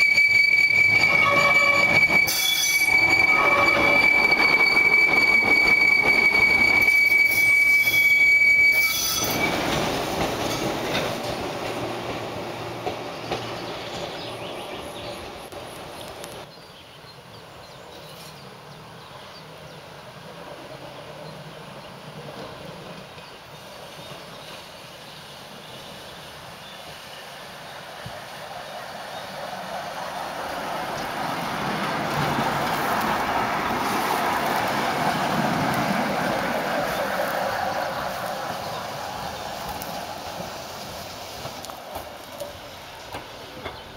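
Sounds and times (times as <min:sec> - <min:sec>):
tram wheels squealing on track: 0:00.0 - 0:15.8
tram running rumble: 0:00.0 - 0:16.5, 0:18.5 - 0:43.9.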